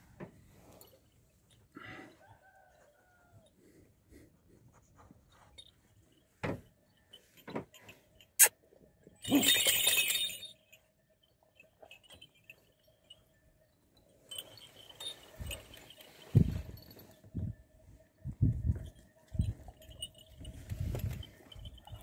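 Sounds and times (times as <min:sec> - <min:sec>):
metal collar jangling: 0:05.0 - 0:08.5, 0:09.1 - 0:17.3, 0:18.7 - 0:22.0.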